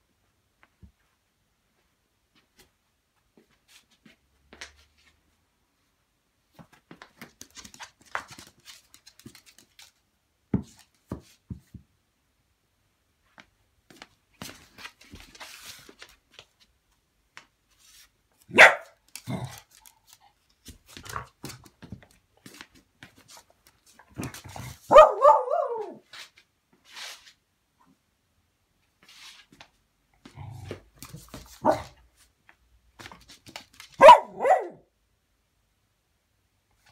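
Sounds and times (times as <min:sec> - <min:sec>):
dog barking: 0:18.5 - 0:19.0, 0:24.8 - 0:26.0, 0:31.6 - 0:32.0, 0:34.0 - 0:34.9.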